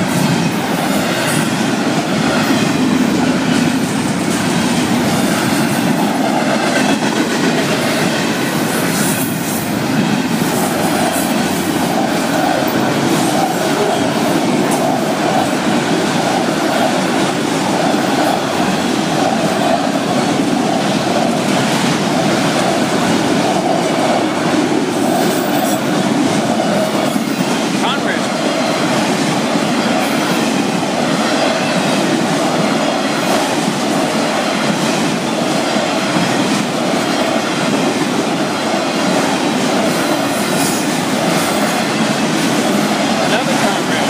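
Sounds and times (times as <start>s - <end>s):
freight train rumbling past: 0.0s - 44.0s.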